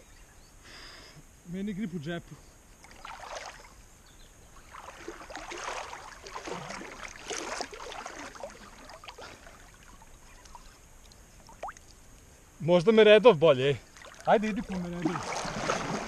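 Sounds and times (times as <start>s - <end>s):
water splashing: 2.8s - 3.8s, 4.6s - 12.0s, 13.8s - 16.0s.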